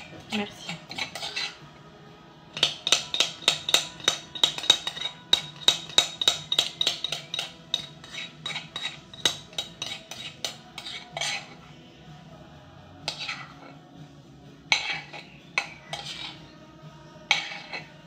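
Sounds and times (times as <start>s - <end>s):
metal utensil clinking in bowl: 0.0s - 1.6s, 2.6s - 11.6s, 14.7s - 16.4s, 17.3s - 17.9s.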